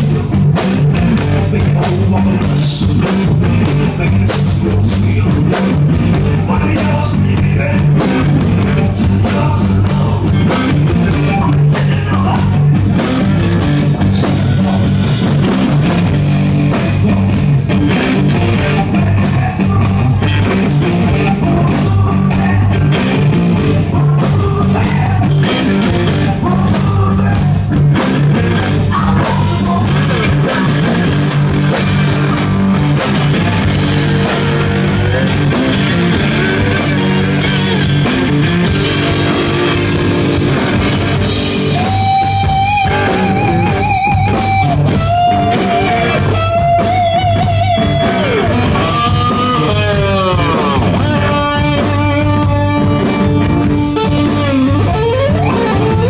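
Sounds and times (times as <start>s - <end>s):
drums: 0.0s - 56.0s
electric guitar: 0.0s - 56.0s
low backing: 0.0s - 56.0s.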